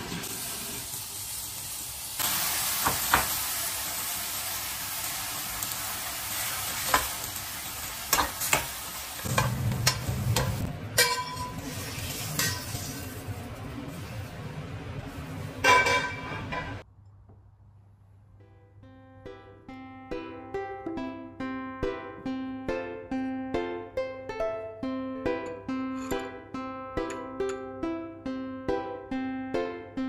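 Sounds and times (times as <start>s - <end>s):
meat sizzling in a frying pan: 0.0s - 10.7s
spatula scraping a pan: 9.3s - 13.2s, 15.6s - 16.8s.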